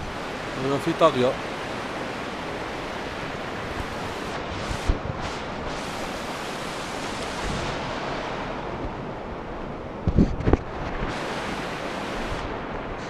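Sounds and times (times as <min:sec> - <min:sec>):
river rushing over rapids: 0:00.0 - 0:13.0
wind on microphone: 0:00.0 - 0:13.0.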